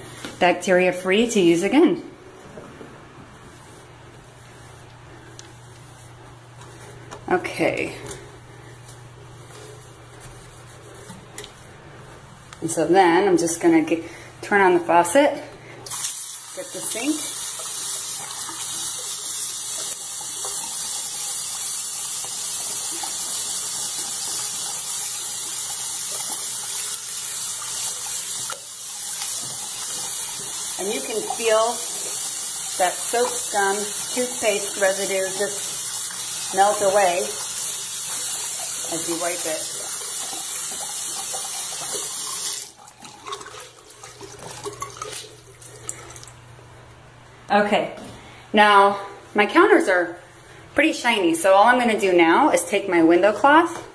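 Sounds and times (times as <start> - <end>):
wet cloth rubbing porcelain: 8.6 - 12.5
faucet water splashing into sink: 15.9 - 46.4.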